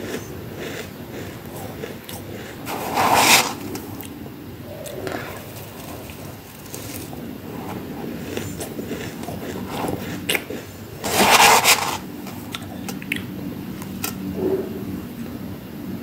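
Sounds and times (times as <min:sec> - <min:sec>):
chewing crunchy frost: 0:00.0 - 0:14.2
metal spoon scraping frost: 0:01.5 - 0:03.8, 0:05.4 - 0:12.4.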